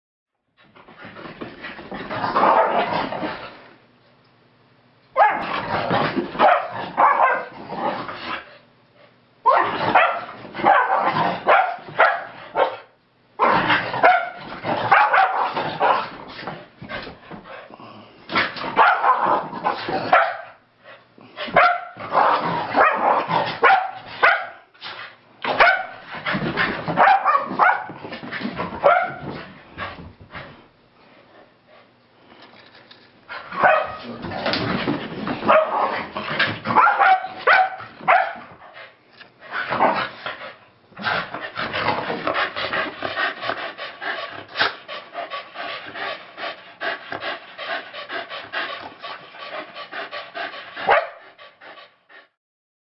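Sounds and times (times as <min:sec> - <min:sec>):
dogs barking and yipping: 0:05.2 - 0:05.6, 0:06.4 - 0:07.5, 0:09.5 - 0:16.1, 0:18.8 - 0:19.3, 0:20.1 - 0:20.6, 0:21.6 - 0:24.6, 0:26.9 - 0:28.0, 0:33.6 - 0:34.0, 0:35.4 - 0:38.6, 0:50.9 - 0:51.2
dogs panting: 0:38.5 - 0:52.4.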